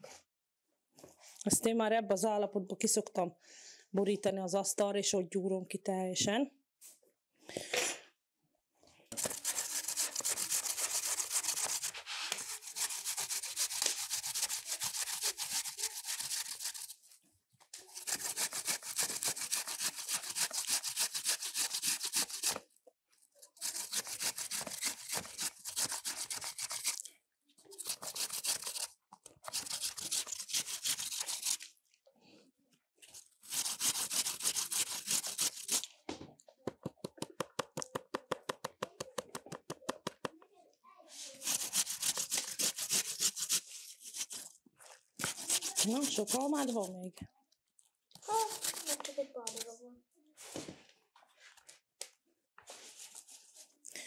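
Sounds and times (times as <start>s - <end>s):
apples scraping on a grater: 9.2s - 17.0s, 17.8s - 22.6s, 23.6s - 27.0s, 27.8s - 31.6s, 33.4s - 35.9s, 41.4s - 44.5s, 45.2s - 47.0s, 48.3s - 49.6s.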